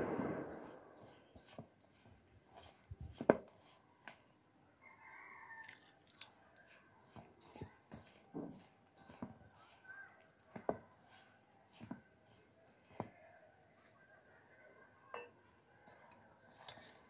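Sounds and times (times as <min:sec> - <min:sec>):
hand rubbing dough in bowl: 0:00.1 - 0:04.3, 0:06.1 - 0:13.2.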